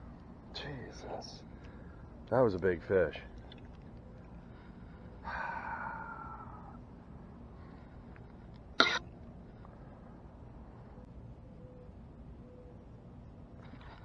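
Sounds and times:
man sighing: 0:05.2 - 0:06.8.

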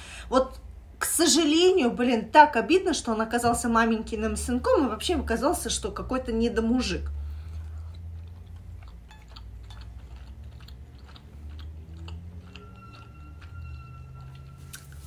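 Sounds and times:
steady low hum: 0:00.0 - 0:15.0
person chewing: 0:07.0 - 0:15.0
wet mouth clicks: 0:07.3 - 0:13.1.

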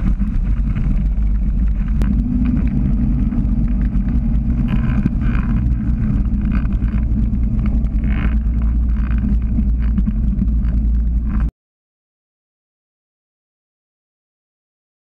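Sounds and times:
engine and propeller running: 0:00.0 - 0:11.5.

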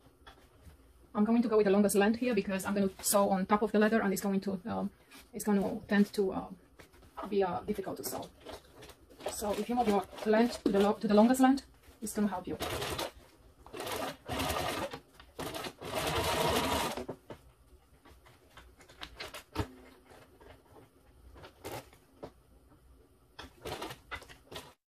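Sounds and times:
sewing machine stitching: 0:12.5 - 0:17.1.

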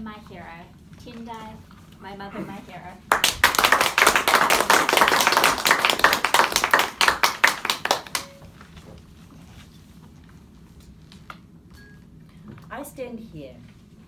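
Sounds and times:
audience applauding: 0:03.1 - 0:08.4.

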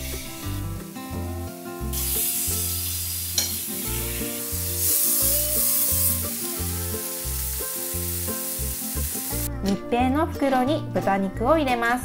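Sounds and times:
pork sizzling in frying pan: 0:00.0 - 0:09.5.

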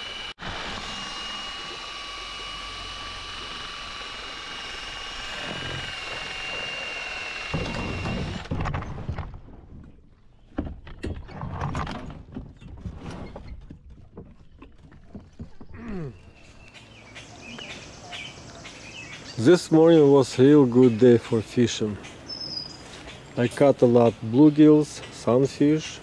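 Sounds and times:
motor whining: 0:00.0 - 0:08.6
hull knocking and scraping on rollers: 0:05.3 - 0:16.6.

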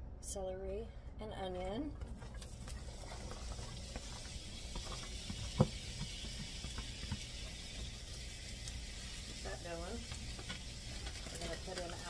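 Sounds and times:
vegetables sizzling in hot oil: 0:02.7 - 0:12.0.

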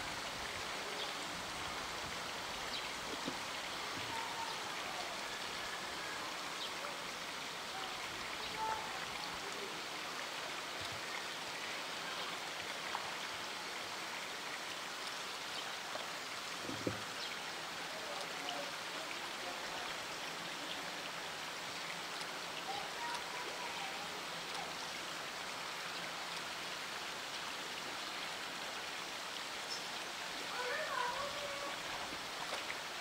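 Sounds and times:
running water rushing: 0:00.0 - 0:33.0
soft low thump: 0:16.6 - 0:17.1.

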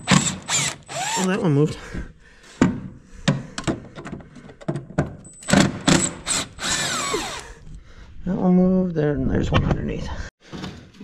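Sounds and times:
hand tools clicking and knocking: 0:02.6 - 0:07.4.

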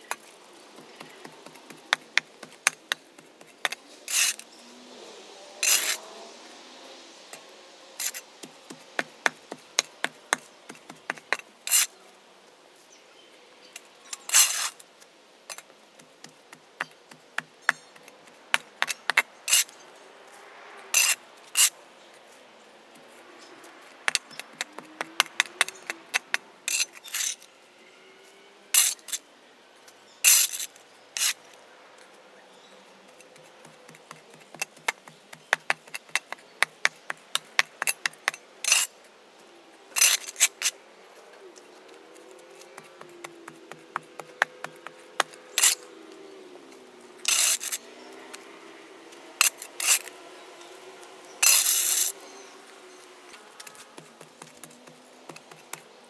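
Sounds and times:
shovel scraping on asphalt: 0:00.0 - 0:06.5, 0:07.3 - 0:12.0, 0:14.1 - 0:14.8, 0:17.1 - 0:21.8, 0:23.0 - 0:27.5, 0:28.8 - 0:29.2, 0:30.2 - 0:31.5, 0:33.2 - 0:39.0, 0:39.9 - 0:40.8, 0:41.6 - 0:45.9, 0:47.2 - 0:48.5, 0:49.1 - 0:55.8.

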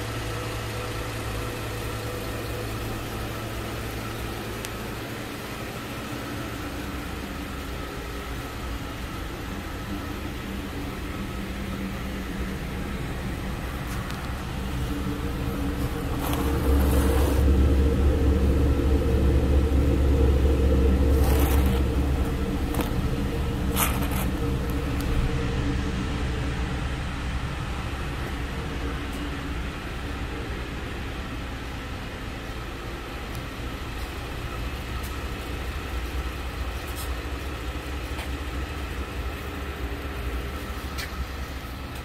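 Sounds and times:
deep exhaust note: 0:00.0 - 0:31.8
car engine idling: 0:00.0 - 0:42.0.

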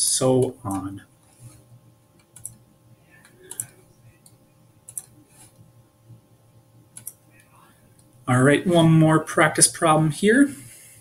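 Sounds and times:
faint electrical hum: 0:00.0 - 0:11.0
faint computer clicks: 0:02.1 - 0:02.6, 0:03.2 - 0:05.7, 0:06.9 - 0:08.1.

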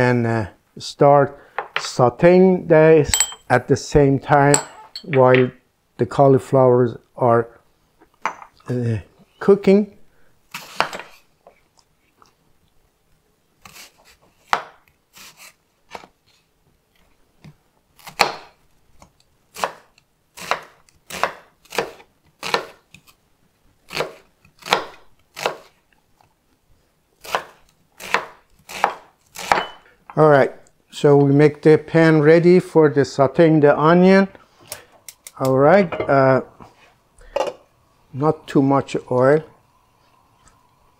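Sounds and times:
knife chopping on wooden board: 0:23.9 - 0:25.7, 0:27.3 - 0:29.8.

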